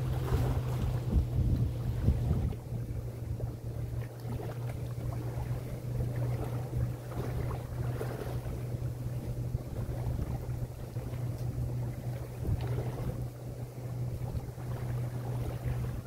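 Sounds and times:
wind gusting on microphone: 0.0 - 5.7, 6.3 - 13.3
distant engine drone: 0.0 - 16.0
lake waves lapping shore: 0.0 - 16.0.

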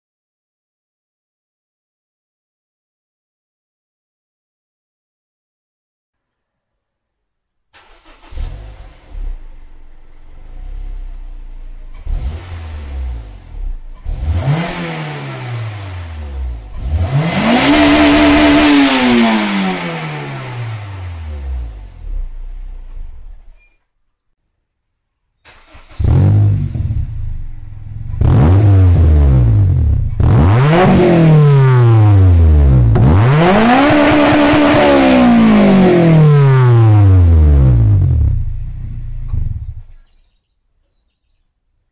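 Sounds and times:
car engine revving: 7.8 - 23.5, 25.5 - 40.0.

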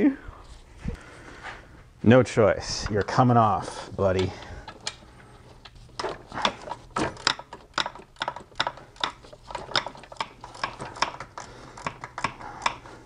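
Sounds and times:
socket ratchet clicking: 6.0 - 12.8.

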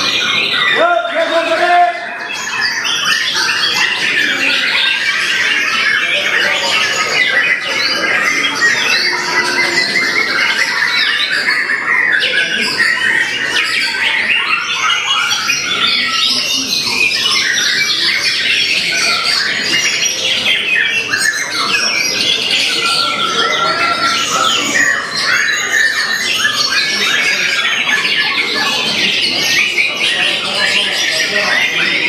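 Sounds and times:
bird singing fast varied phrases: 0.0 - 32.0.

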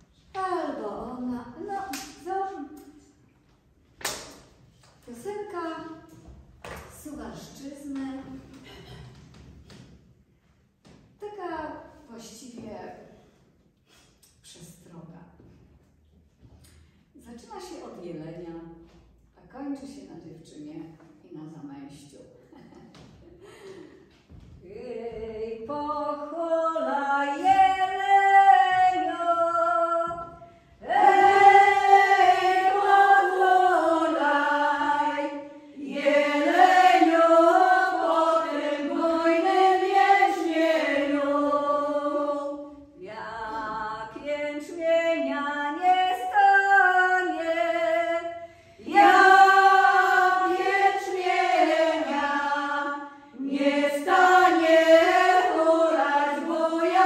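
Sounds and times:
women singing unaccompanied: 24.6 - 57.0.

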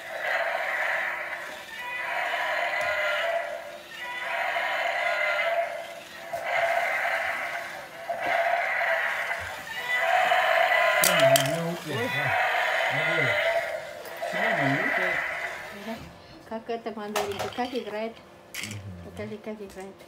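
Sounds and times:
toy electronic creature call: 0.0 - 15.9.

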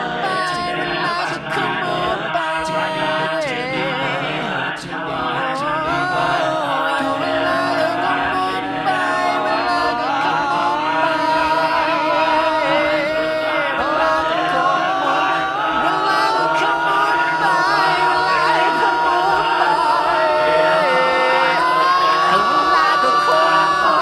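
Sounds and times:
chant sung in long held lines: 0.0 - 24.0.

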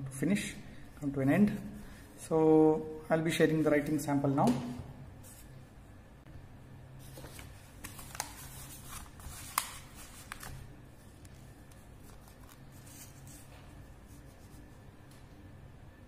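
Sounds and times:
paper notepad rustling: 7.0 - 14.8.

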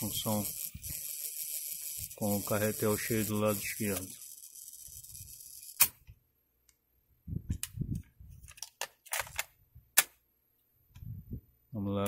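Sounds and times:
plastic cassette clicks: 8.5 - 10.1.

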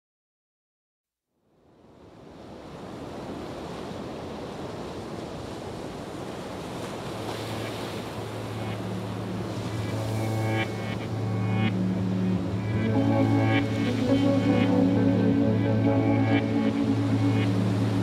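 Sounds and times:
ocean surf: 1.6 - 18.0
sustained music notes: 8.2 - 18.0.

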